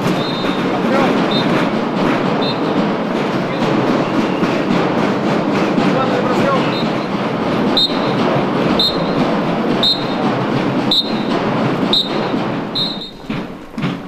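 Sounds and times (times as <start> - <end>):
whistle blasts: 0.0 - 1.7, 2.3 - 2.9, 3.6 - 4.7, 6.6 - 7.1, 7.7 - 13.3
steady outdoor din: 0.0 - 14.0.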